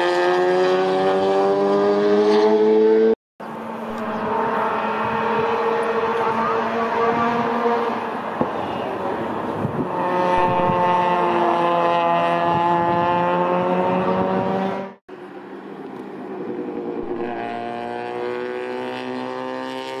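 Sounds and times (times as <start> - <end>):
rotary engine revving high: 0.0 - 20.0.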